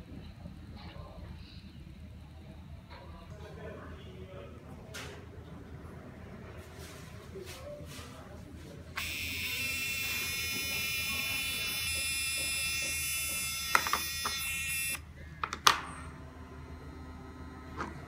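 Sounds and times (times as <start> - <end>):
high electronic buzzing alarm tone: 9.0 - 15.0.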